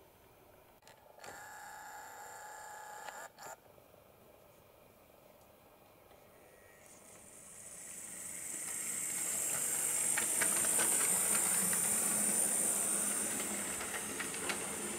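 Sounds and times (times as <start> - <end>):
steady high hiss: 4.3 - 14.9.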